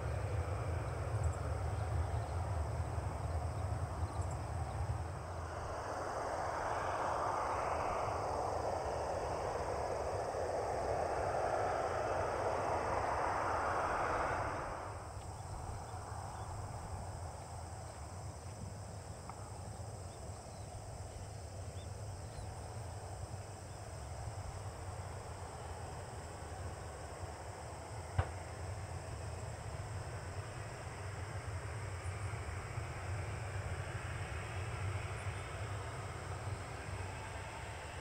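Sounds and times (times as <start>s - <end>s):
faint low engine rumble: 0.0s - 38.0s
jet engine whoosh: 4.8s - 17.0s.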